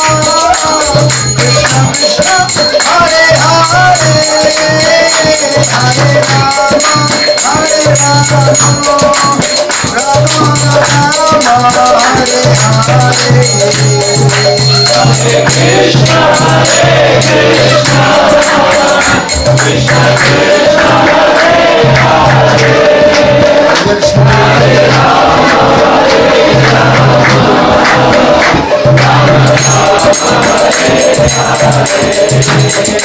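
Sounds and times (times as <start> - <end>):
hand cymbals jingling: 0.0 - 26.6, 28.5 - 33.0
man singing a devotional chant: 0.0 - 33.0.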